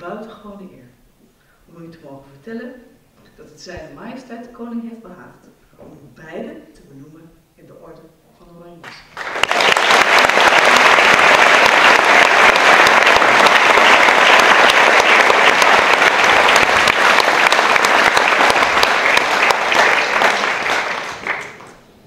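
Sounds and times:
audience applauding: 9.0s - 21.9s.

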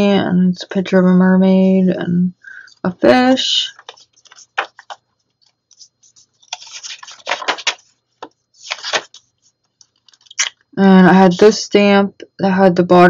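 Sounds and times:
paper pages rustling: 3.7s - 10.5s.

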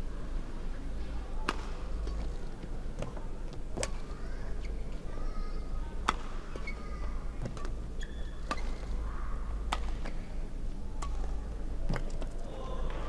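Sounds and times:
rackets striking shuttlecock: 6.0s - 6.7s, 9.7s - 10.1s
shoes squeaking on court: 6.6s - 8.9s.

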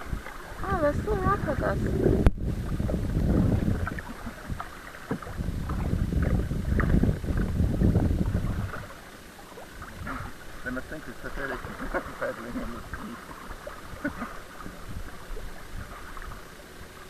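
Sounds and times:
wind buffeting microphone: 0.0s - 9.0s
paddle splashing water: 0.0s - 17.0s.

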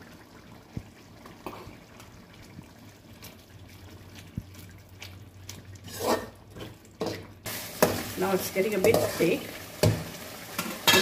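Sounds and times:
curry gravy simmering: 0.0s - 10.9s
metal spoon scraping pot: 5.9s - 6.4s.

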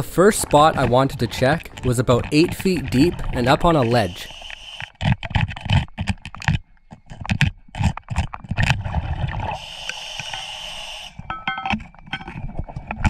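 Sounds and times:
metal tools scraping rock underwater: 0.0s - 13.0s
steady hiss: 2.4s - 4.9s
metallic clinks: 11.3s - 12.4s.

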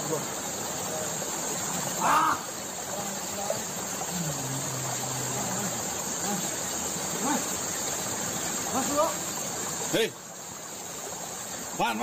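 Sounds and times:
high-pitched insect buzzing: 2.0s - 7.9s.

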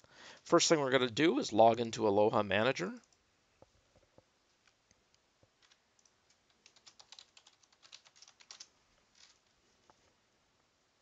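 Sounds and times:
keyboard typing: 5.6s - 9.4s.

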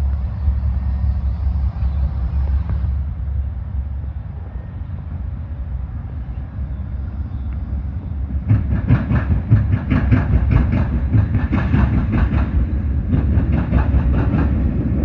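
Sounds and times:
passenger train rumble: 0.0s - 15.0s
train wheels clacking: 8.3s - 15.0s.

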